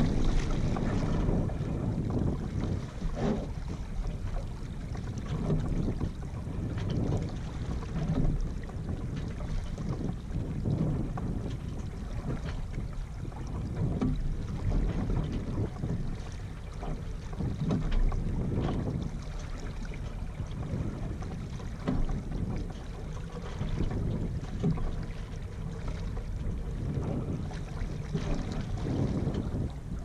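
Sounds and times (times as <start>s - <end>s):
water washing along hull: 0.0s - 30.0s
wind buffeting microphone: 0.0s - 30.0s.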